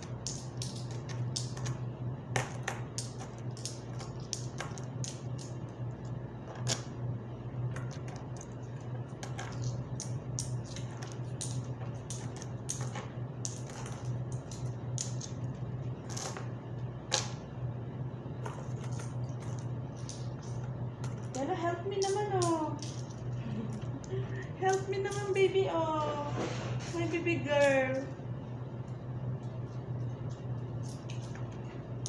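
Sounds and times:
steady low hum: 0:00.0 - 0:32.0
coins clinking on tabletop: 0:00.2 - 0:01.8, 0:09.2 - 0:15.4, 0:18.4 - 0:23.9.

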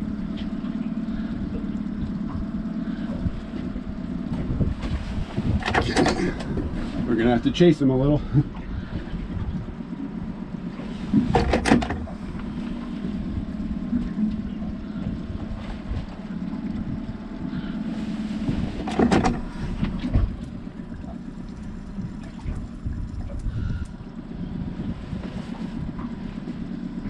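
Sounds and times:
outboard motor running: 0:00.0 - 0:27.0.

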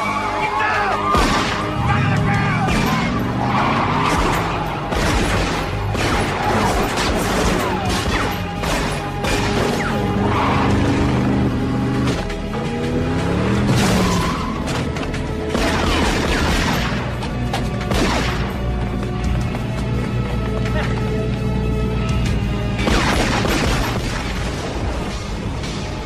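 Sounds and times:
action film music: 0:00.0 - 0:26.0
pistol shots: 0:15.5 - 0:17.1, 0:22.8 - 0:24.4.

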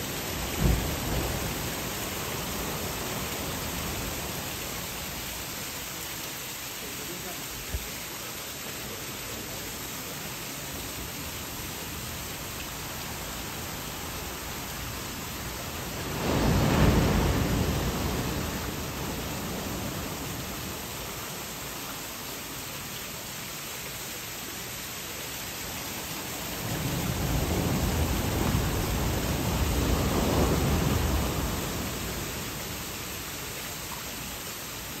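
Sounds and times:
waves washing: 0:00.0 - 0:06.3, 0:09.3 - 0:22.6, 0:25.6 - 0:35.0
wave breaking on beach: 0:11.9 - 0:21.6, 0:26.3 - 0:33.5.

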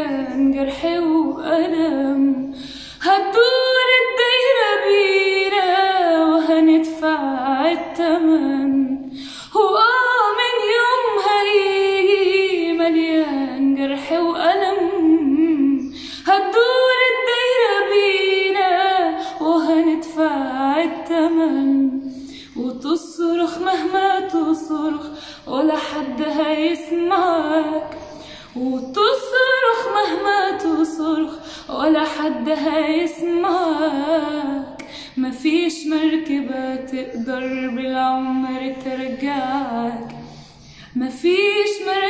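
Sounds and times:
woman singing unaccompanied: 0:00.0 - 0:42.0.

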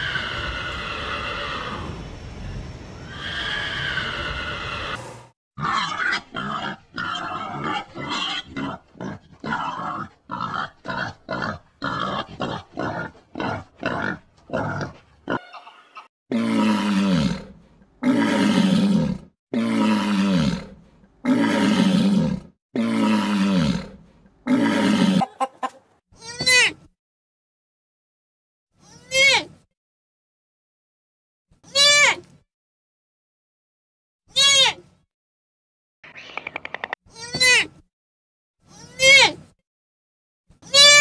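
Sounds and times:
wild boar grunting: 0:05.6 - 0:15.4.

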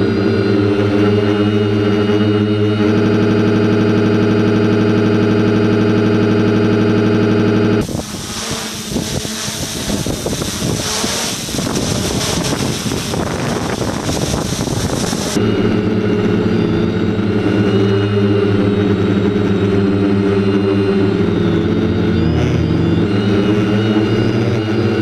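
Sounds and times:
drone motors and propellers humming: 0:00.0 - 0:25.0
wind noise on microphone: 0:07.8 - 0:25.0.

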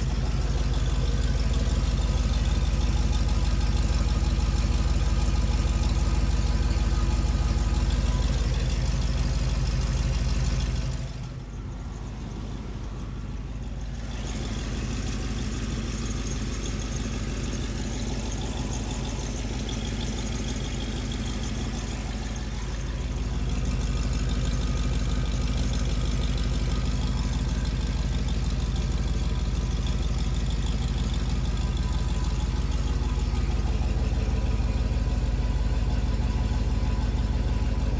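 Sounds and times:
car engine idling: 0:00.0 - 0:37.9.

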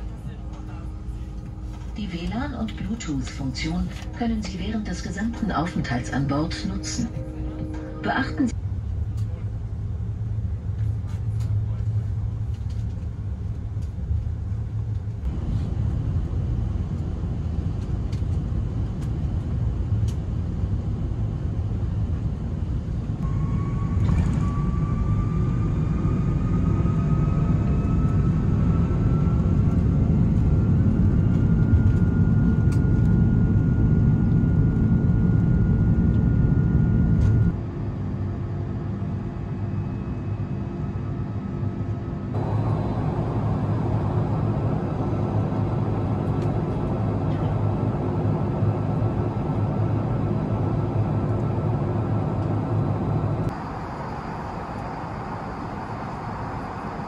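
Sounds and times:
jet engine rumble: 0:00.0 - 0:57.0
jet engine whine rising: 0:15.3 - 0:57.0.

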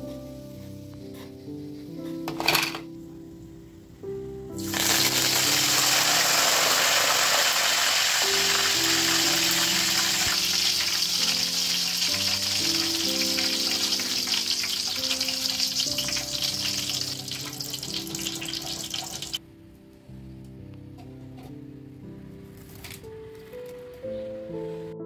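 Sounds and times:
leaves sizzling in hot oil: 0:04.6 - 0:19.4.

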